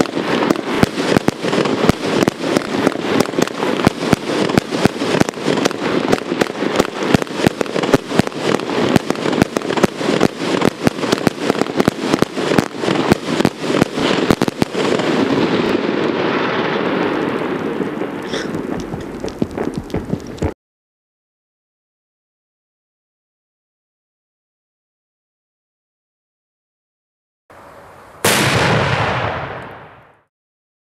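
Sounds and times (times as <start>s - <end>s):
firework cake firing shots: 0.0s - 15.5s, 28.2s - 30.2s.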